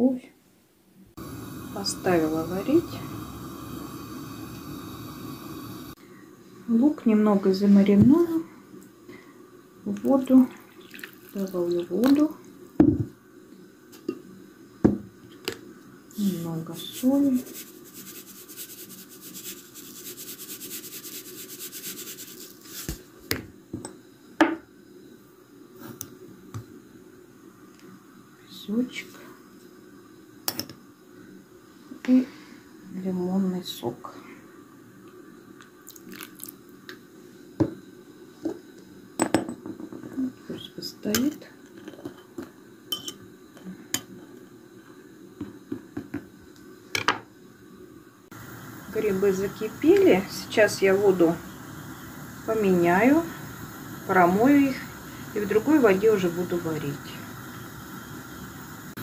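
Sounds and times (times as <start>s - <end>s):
salt shaken into a bowl: 16.1s - 23.1s
china bowl clinking: 42.9s - 43.2s.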